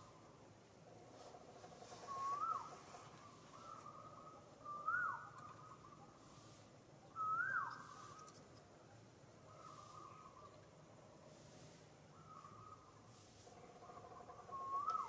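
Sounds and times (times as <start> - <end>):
faint steady whistle-like tone: 2.0 - 8.4, 14.1 - 15.0
animal whistled call: 7.2 - 7.9.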